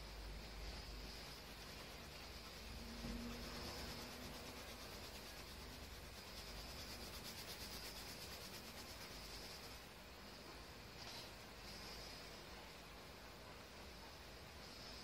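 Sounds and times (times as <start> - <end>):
coloured pencil shading on paper: 0.0 - 12.6.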